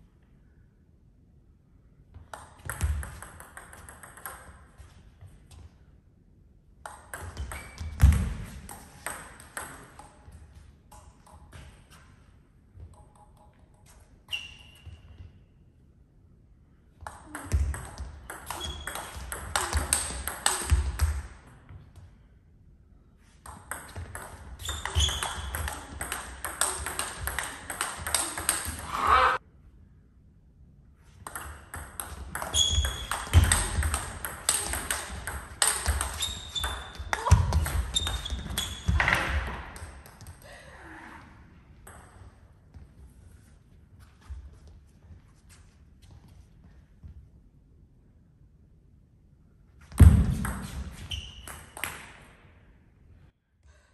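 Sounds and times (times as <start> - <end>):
ball bouncing on table: 2.2 - 4.6, 6.8 - 10.2, 17.0 - 21.2, 23.5 - 28.9, 31.2 - 40.2
table tennis ball hits: 2.2 - 4.8, 6.8 - 10.3, 17.0 - 21.6, 23.4 - 29.0, 31.2 - 40.2, 50.0 - 52.3.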